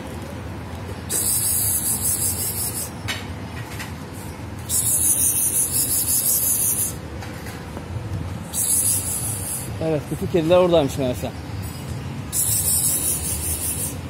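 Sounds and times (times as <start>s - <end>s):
outdoor background noise: 0.0s - 14.0s
loud high-pitched hissing: 1.1s - 3.0s, 4.7s - 7.0s, 8.5s - 9.8s, 12.3s - 14.0s.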